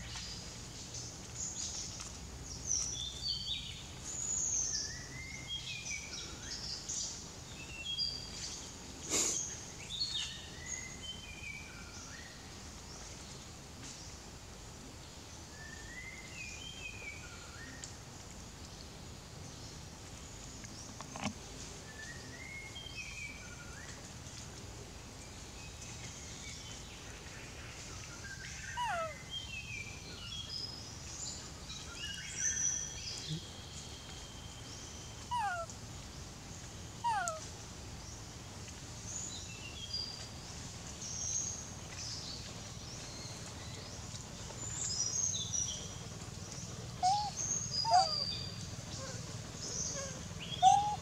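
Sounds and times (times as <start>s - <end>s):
birds chirping: 35.0s - 35.7s, 36.9s - 38.2s, 39.1s - 51.0s
monkey falling cries: 47.0s - 48.2s, 50.6s - 51.0s.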